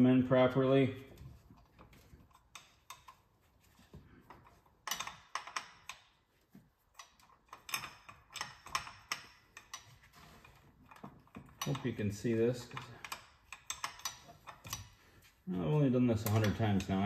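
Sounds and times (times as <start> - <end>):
metal parts clicking and tapping: 1.2 - 17.0.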